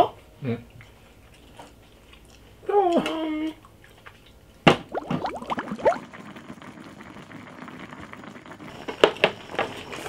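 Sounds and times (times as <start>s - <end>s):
broth bubbling at a boil: 4.7s - 9.6s.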